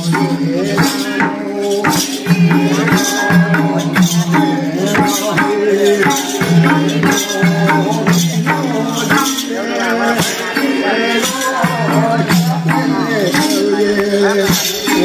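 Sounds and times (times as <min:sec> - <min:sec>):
hand drum beat: 0:00.0 - 0:15.0
jingling shaker percussion: 0:00.0 - 0:15.0
voices singing: 0:00.0 - 0:15.0.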